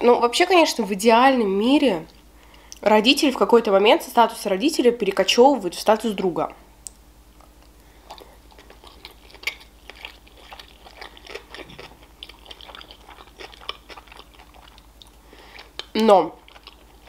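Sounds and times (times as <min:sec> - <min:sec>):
wet mouth smacks: 0:06.8 - 0:16.8
crunchy chewing clicks: 0:06.8 - 0:17.0
person chewing food: 0:07.4 - 0:17.0.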